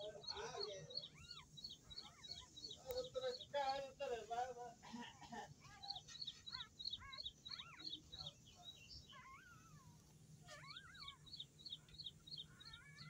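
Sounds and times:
puppies squeaking and whining: 0.0s - 2.8s, 5.7s - 8.4s, 9.0s - 13.0s.

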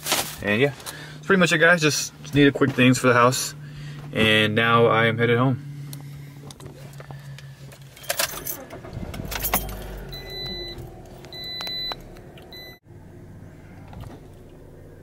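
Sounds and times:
car engine starting: 0.5s - 15.0s
dashboard warning chime: 8.0s - 12.8s
keys jangling: 9.3s - 10.0s.

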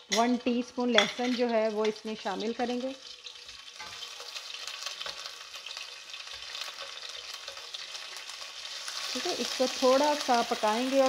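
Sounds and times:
garlic sizzling in hot oil: 0.0s - 11.0s
knife blade scraping a pan: 3.3s - 8.1s.

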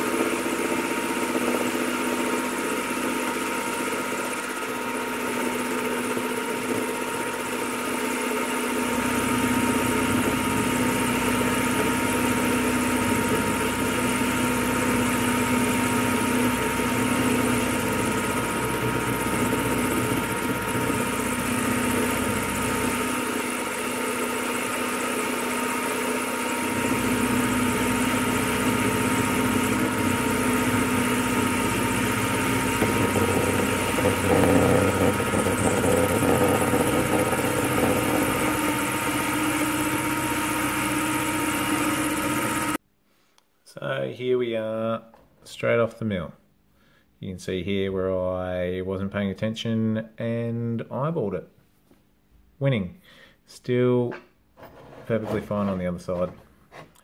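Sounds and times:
milling machine motor whine: 0.0s - 42.8s
end mill cutting steel: 5.2s - 42.8s.

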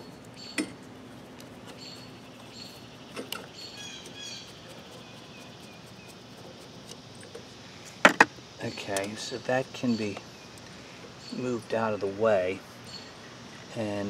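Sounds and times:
birds chirping: 0.0s - 14.0s
low steady hum: 0.0s - 14.0s.

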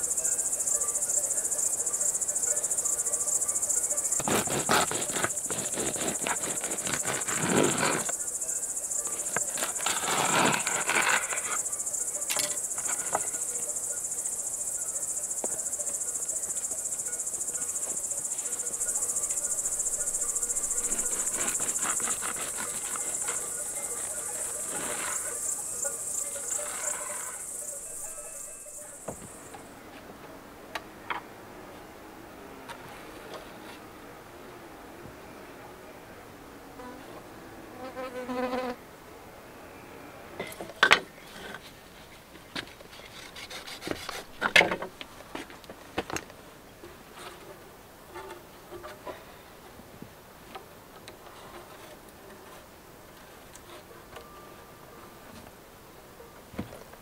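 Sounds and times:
crickets chirping: 0.0s - 57.0s
rough handling sounds: 3.9s - 13.7s, 16.5s - 30.1s, 40.4s - 49.4s.

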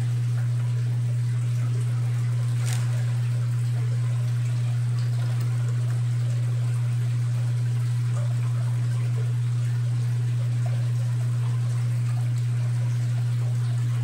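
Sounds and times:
pump humming: 0.0s - 14.0s
water pouring and trickling: 0.0s - 14.0s.

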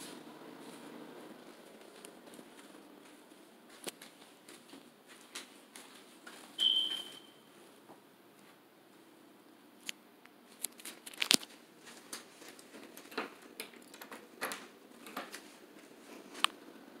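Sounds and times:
footsteps: 0.0s - 9.0s, 10.5s - 13.5s.

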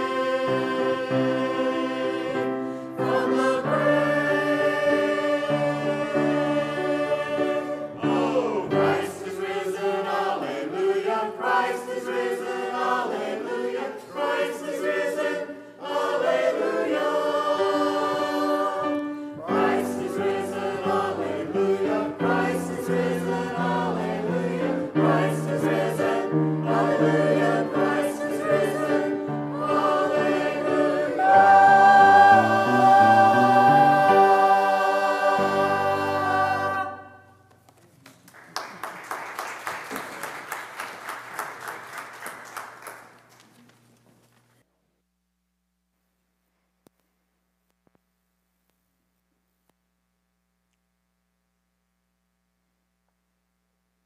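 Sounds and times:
church choir singing: 0.0s - 37.4s.

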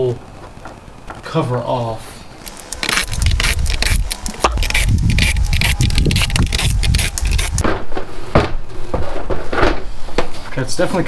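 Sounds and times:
cordless drill rumble: 2.4s - 7.6s
plastic clicking and scraping: 2.4s - 7.6s.

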